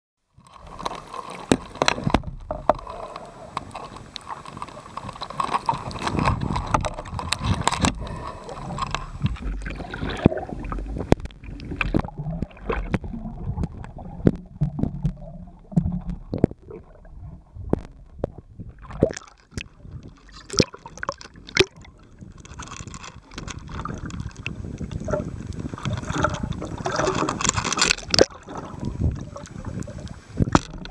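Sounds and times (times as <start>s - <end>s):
water rushing and gurgling: 0.4s - 30.9s
sharp clicks and knocks: 0.5s - 16.9s, 17.7s - 24.2s, 30.5s - 30.9s.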